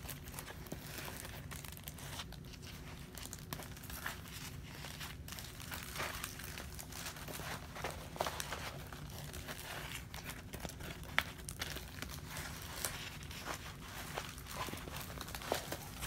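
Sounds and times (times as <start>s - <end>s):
plastic cover rustling and crinkling: 0.0s - 16.0s.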